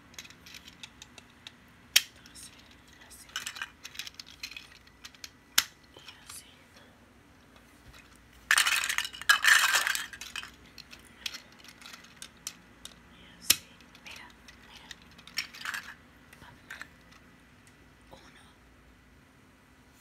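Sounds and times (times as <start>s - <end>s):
plastic bricks clattering: 0.1s - 6.2s, 7.8s - 12.6s, 13.6s - 16.0s.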